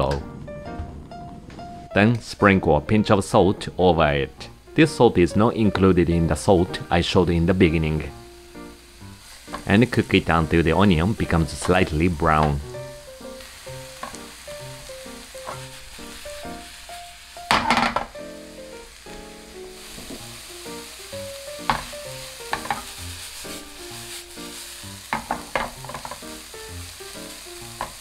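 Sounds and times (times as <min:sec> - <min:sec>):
soft background music: 0:00.0 - 0:28.0
onion sizzling in oil: 0:04.6 - 0:28.0
spatula scraping frying pan: 0:21.6 - 0:26.4.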